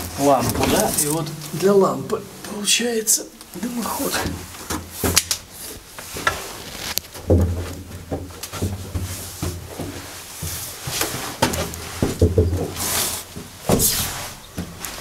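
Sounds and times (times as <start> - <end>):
knocks and low thuds: 7.2 - 10.6, 11.4 - 12.8.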